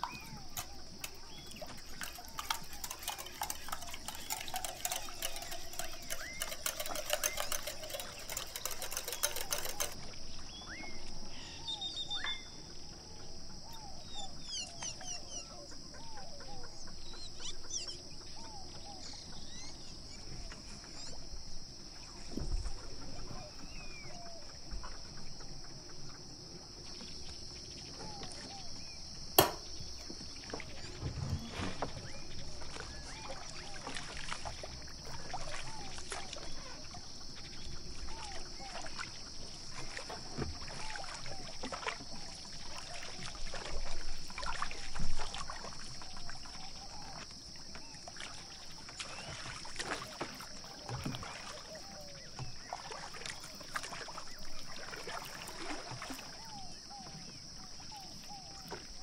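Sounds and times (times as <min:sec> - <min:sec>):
sharp click: 0:29.4 - 0:29.8.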